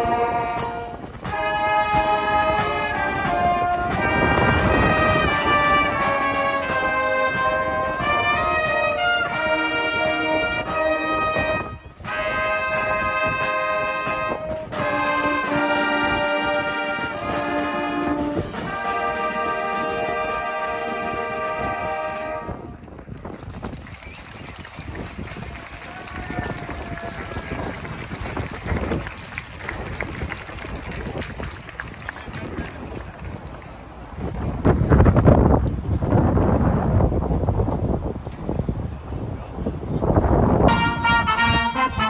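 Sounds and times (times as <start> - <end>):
brass band playing: 0.0 - 22.9, 40.6 - 42.0.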